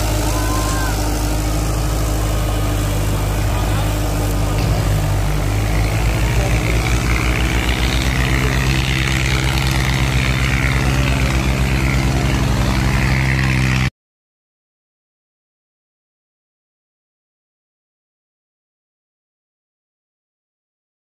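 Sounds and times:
low throb: 0:00.0 - 0:13.9
tractor diesel engine under load: 0:00.0 - 0:13.9.

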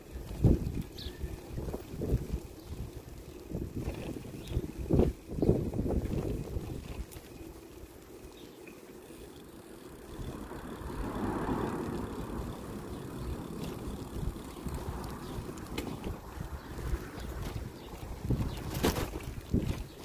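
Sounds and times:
wind on microphone: 0:00.0 - 0:07.3, 0:10.0 - 0:20.0
bicycle road noise: 0:00.0 - 0:20.0.

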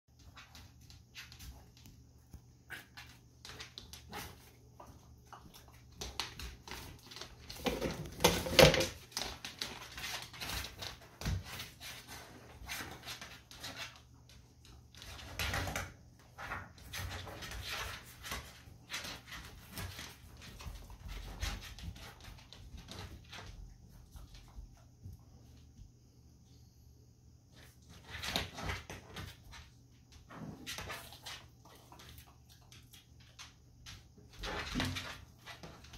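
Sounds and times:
animals sniffing and snuffling: 0:00.1 - 0:08.1, 0:09.0 - 0:15.6.

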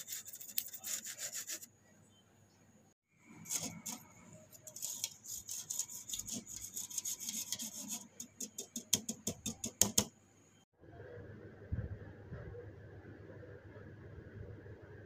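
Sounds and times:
spoon scraping through wire sieve: 0:03.3 - 0:09.7.

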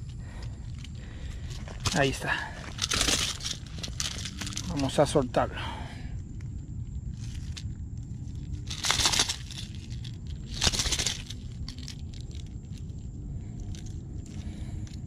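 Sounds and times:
plastic lure rattling and crunching: 0:00.4 - 0:05.1, 0:07.1 - 0:13.0, 0:13.6 - 0:15.0.

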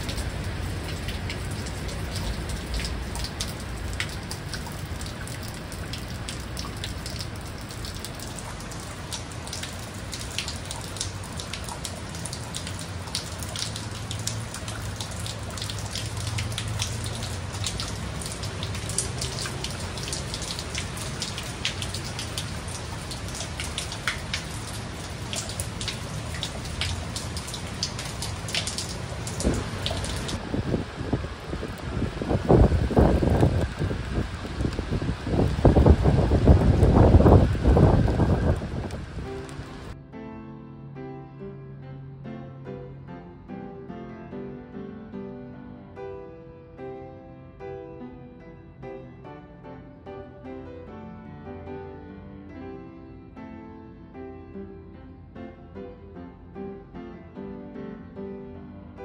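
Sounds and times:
raindrops ticking close by: 0:00.0 - 0:40.0
heavy rain hissing: 0:08.1 - 0:40.0.

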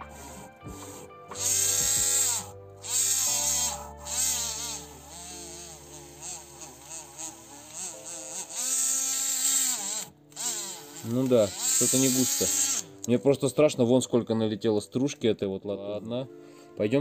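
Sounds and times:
mini grinder buzzing whine: 0:00.0 - 0:13.0
grinding hiss on metal: 0:10.8 - 0:12.9.

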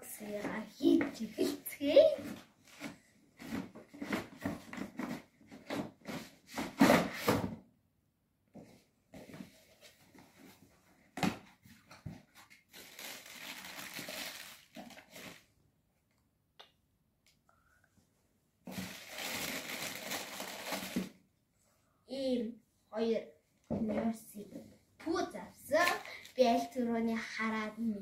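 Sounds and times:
paper and cardboard rustling: 0:00.3 - 0:07.5, 0:18.7 - 0:21.1.

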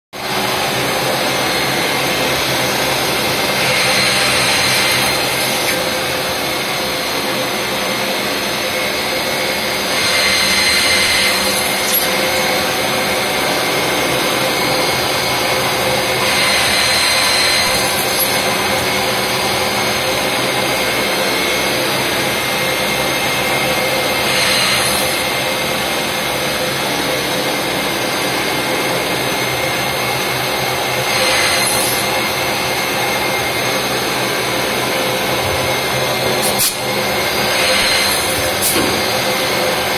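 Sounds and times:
spindle and coolant rush: 0:00.2 - 0:26.6
drill cutting steel: 0:00.4 - 0:39.9.

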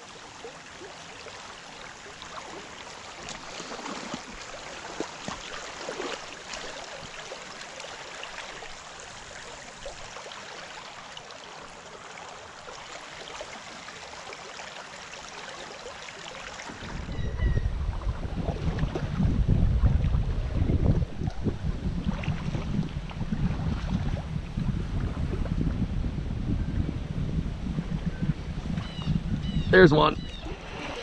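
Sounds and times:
river water babbling: 0:00.0 - 0:18.2, 0:29.6 - 0:31.0
wind buffeting microphone: 0:16.7 - 0:31.0.

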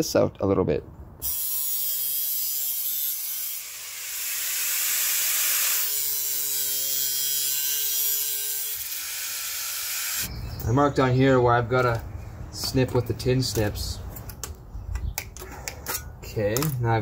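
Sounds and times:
angle grinder cutting metal: 0:01.2 - 0:10.3.

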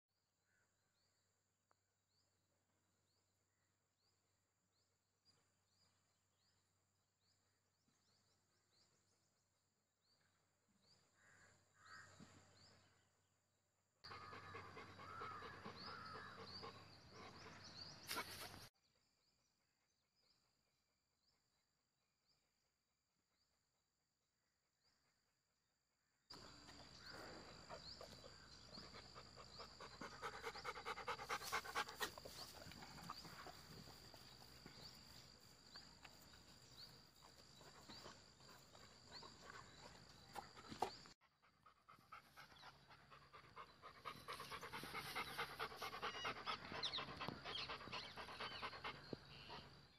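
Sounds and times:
dog panting: 0:14.1 - 0:18.6, 0:27.4 - 0:35.2, 0:37.2 - 0:49.9.

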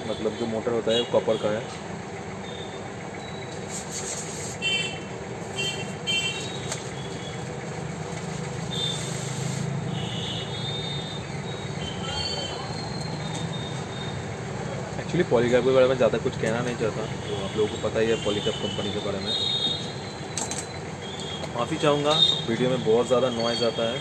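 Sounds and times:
low traffic rumble: 0:00.0 - 0:24.0
rubbing and squeaks on polystyrene: 0:03.6 - 0:04.8.

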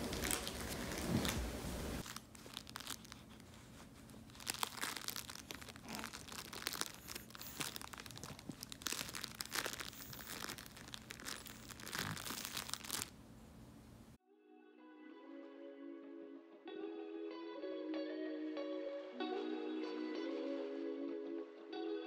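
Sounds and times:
puppy chewing a plush toy: 0:02.0 - 0:13.1
toy crackling: 0:04.3 - 0:13.1.

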